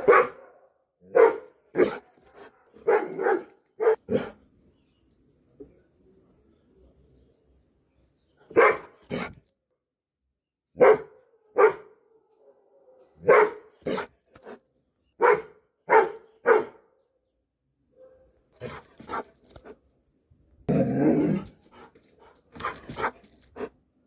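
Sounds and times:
dog barking: 0:00.0 - 0:02.0, 0:02.6 - 0:04.4, 0:08.5 - 0:09.4, 0:10.8 - 0:14.1, 0:15.2 - 0:16.9, 0:17.9 - 0:19.3.

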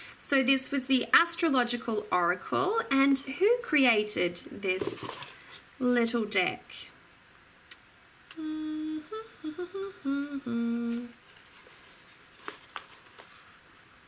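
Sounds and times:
woman humming: 0:08.3 - 0:11.2.

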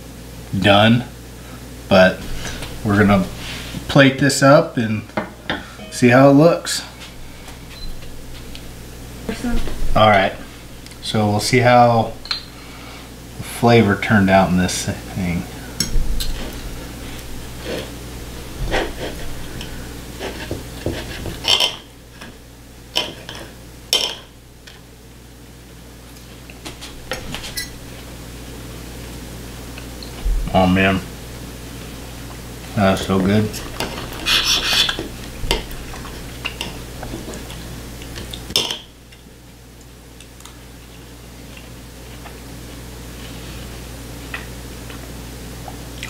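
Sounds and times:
knife and fork scraping a plate: 0:34.2 - 0:35.1.

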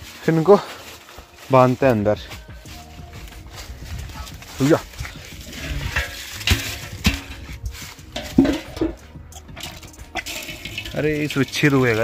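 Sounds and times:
leaves rustling underfoot: 0:00.0 - 0:12.0
metal basin knocks: 0:05.7 - 0:11.5.

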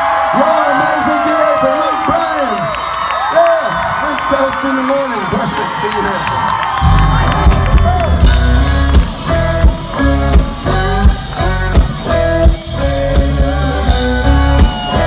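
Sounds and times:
country-rock band playing loud: 0:05.3 - 0:15.0.

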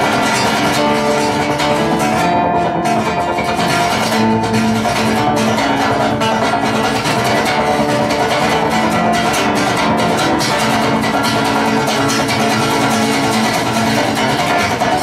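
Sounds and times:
acoustic guitar strummed and picked: 0:00.0 - 0:15.0.

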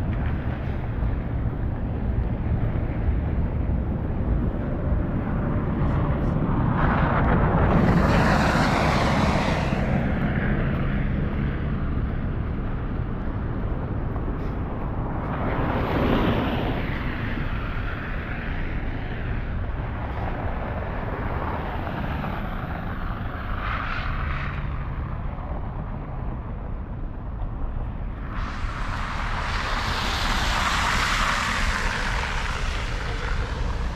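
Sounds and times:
low rumble of traffic: 0:00.0 - 0:33.9
tyres hissing through slush: 0:07.7 - 0:10.0, 0:28.2 - 0:33.9.

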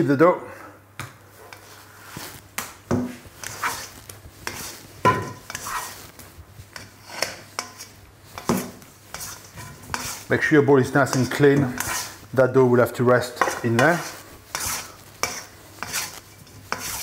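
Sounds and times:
dough scraper scraping bowl: 0:03.0 - 0:06.1, 0:06.7 - 0:10.4, 0:11.0 - 0:12.3, 0:13.4 - 0:17.0.

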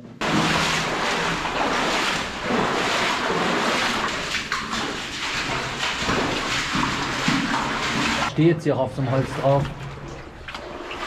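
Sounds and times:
knocks and splashes: 0:00.2 - 0:08.4, 0:09.1 - 0:11.0
people walking through water: 0:00.2 - 0:08.4, 0:09.0 - 0:11.0.

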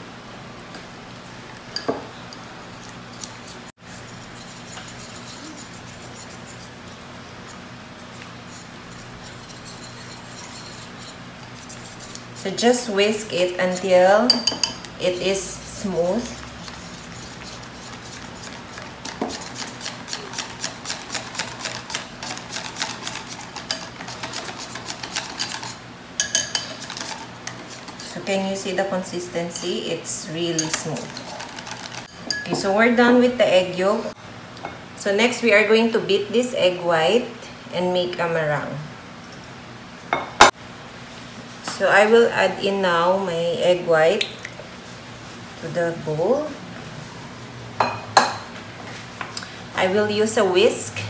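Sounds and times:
low steady hum: 0:00.0 - 0:40.4
whisk clinking against glass bowl: 0:13.6 - 0:14.9, 0:16.6 - 0:27.3, 0:30.6 - 0:32.7.

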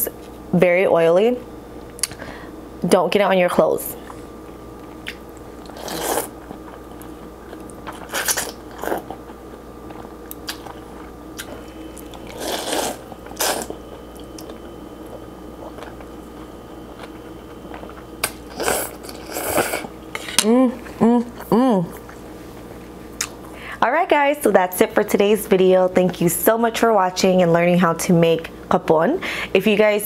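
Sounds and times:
chewing: 0:04.8 - 0:21.0
person slurping noodles: 0:05.7 - 0:06.3, 0:12.3 - 0:13.8, 0:18.5 - 0:19.9.

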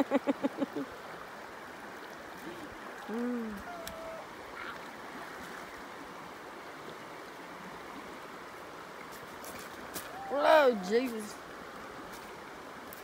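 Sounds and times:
river flowing over rocks: 0:00.0 - 0:13.0.

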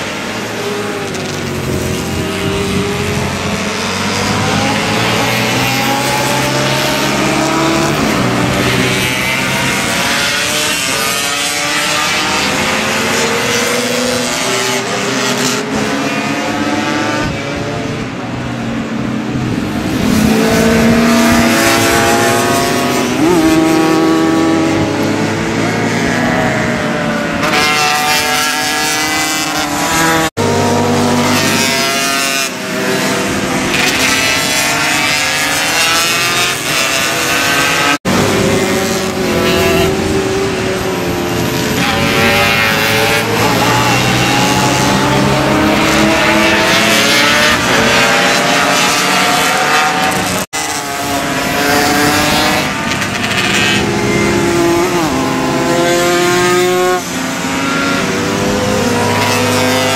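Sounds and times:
motorcycles revving past: 0:00.1 - 0:18.0, 0:19.4 - 0:59.9.

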